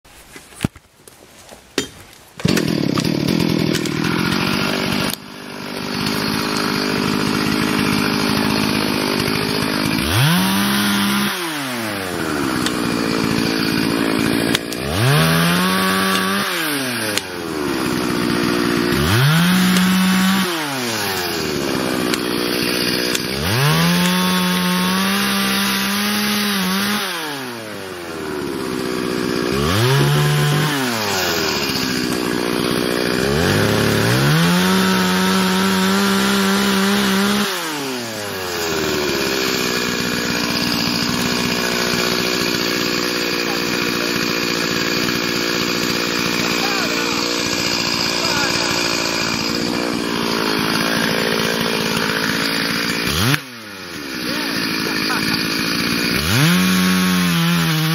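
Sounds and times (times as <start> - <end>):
chainsaw revving and idling: 2.4 - 57.9.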